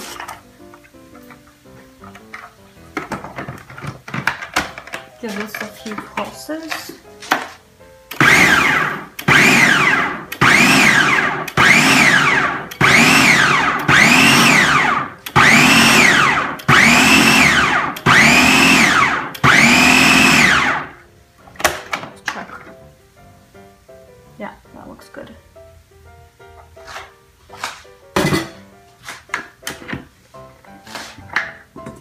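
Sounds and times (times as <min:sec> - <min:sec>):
blender motor pulsing: 0:08.1 - 0:20.9.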